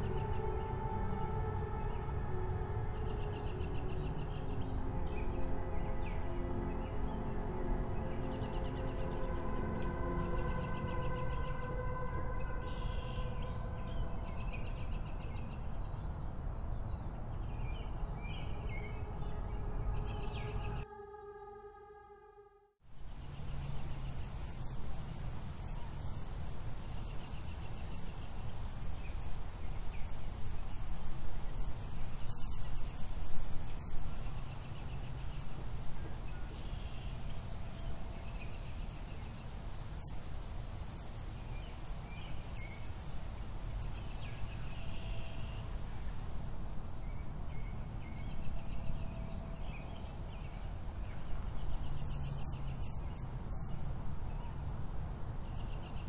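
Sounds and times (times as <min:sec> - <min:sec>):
small birds chirping and trilling: 0:23.0 - 0:56.0.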